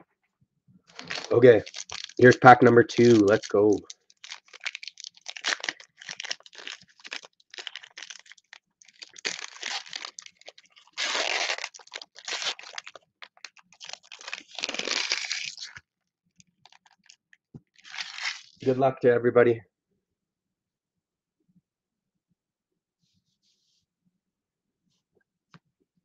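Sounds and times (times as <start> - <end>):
foil wrapper tearing and crinkling: 0.9 - 15.8, 16.5 - 18.7.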